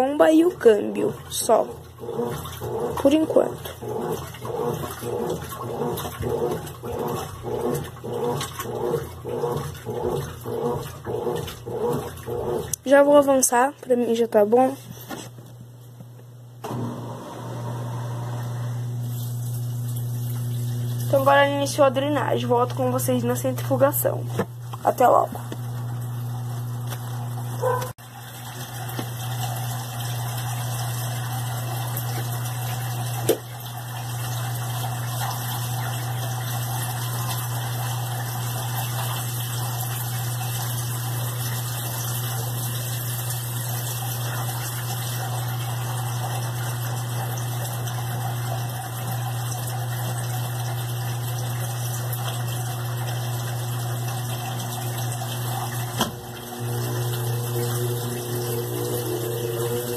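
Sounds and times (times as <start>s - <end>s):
drain pump humming: 0.0s - 59.9s
washing machine click: 55.9s - 56.4s.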